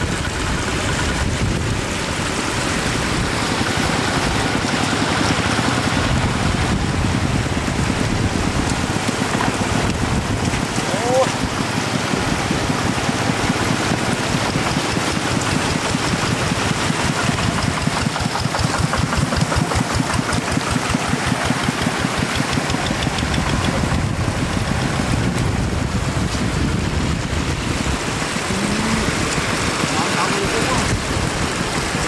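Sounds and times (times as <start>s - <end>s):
tractor engine knocking: 0.0s - 32.0s
water rushing: 0.0s - 32.0s.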